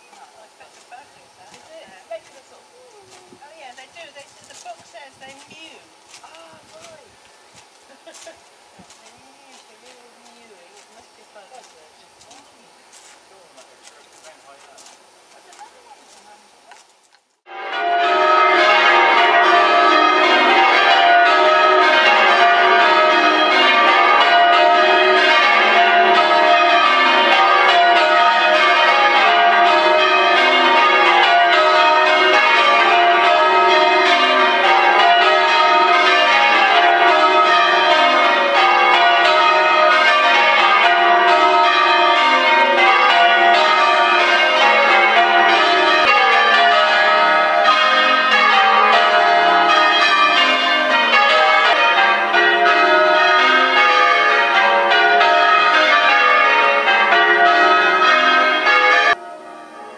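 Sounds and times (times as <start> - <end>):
church bells change ringing: 17.5 - 59.9.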